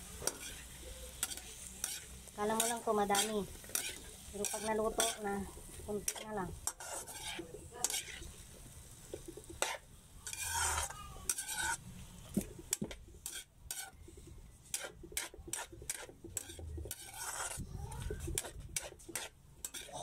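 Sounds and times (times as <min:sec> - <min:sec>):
cabbage sizzling in oil: 0:00.0 - 0:14.0, 0:14.6 - 0:20.0
spatula scraping a wok: 0:00.0 - 0:20.0.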